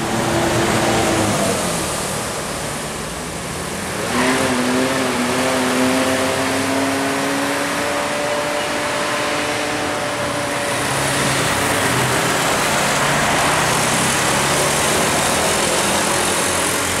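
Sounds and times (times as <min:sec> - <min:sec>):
car passing close: 0:04.0 - 0:17.0
motorcycle engines passing: 0:04.0 - 0:17.0
tyres hissing on wet asphalt: 0:09.6 - 0:17.0.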